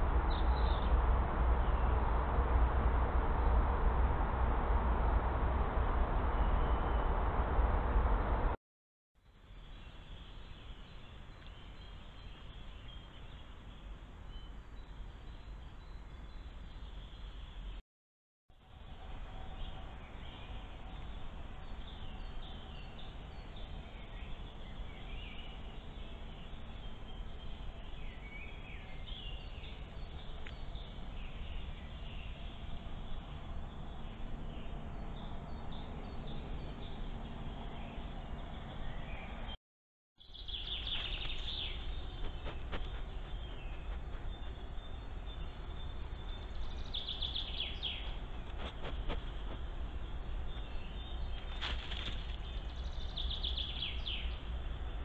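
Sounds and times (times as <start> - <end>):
woodland ambience hiss and rumble: 0.0 - 8.4, 9.2 - 17.8, 18.6 - 39.5, 40.2 - 55.0
small bird chirps: 40.2 - 54.5.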